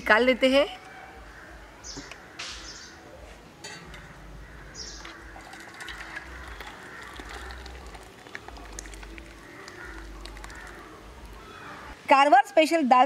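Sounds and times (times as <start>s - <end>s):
bird chirp: 1.4s - 7.8s
thick liquid pouring into bowl: 5.2s - 11.5s.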